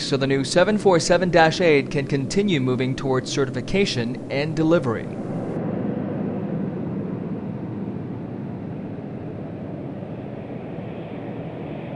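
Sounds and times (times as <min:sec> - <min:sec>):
jet engines running: 0:00.0 - 0:11.9.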